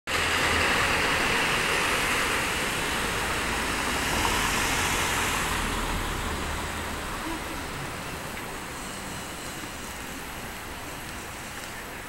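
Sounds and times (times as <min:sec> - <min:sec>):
passing vehicles: 0:00.1 - 0:12.0.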